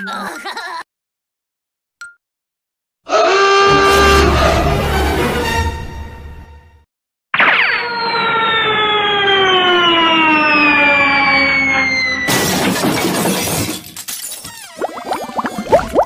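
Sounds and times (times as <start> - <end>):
cartoon falling whistle: 7.4 - 12.5.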